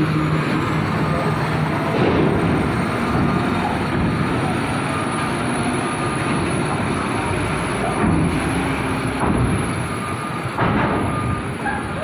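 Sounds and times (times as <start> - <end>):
truck diesel engine running: 0.0 - 12.0.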